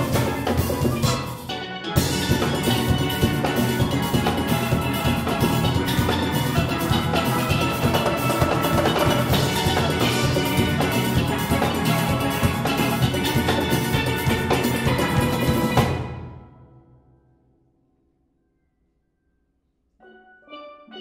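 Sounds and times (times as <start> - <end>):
steelpans playing: 0.0 - 16.0
drum kit and percussion: 0.0 - 16.7.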